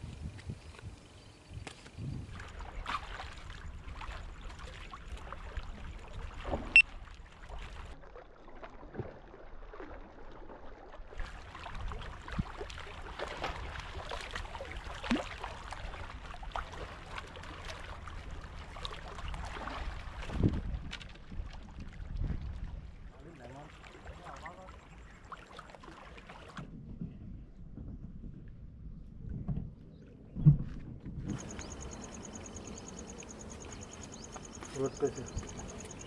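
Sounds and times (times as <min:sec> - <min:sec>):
wind rumbling on microphone: 0:00.0 - 0:08.0, 0:11.2 - 0:17.1, 0:18.0 - 0:23.2, 0:26.5 - 0:32.9.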